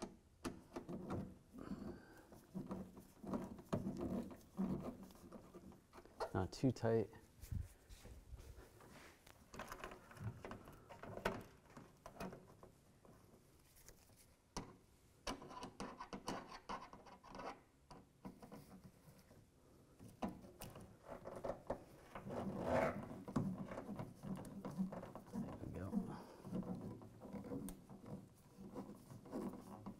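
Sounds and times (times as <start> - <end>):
screwdriver scraping and rubbing: 2.3 - 6.4, 15.4 - 17.7, 20.6 - 29.9.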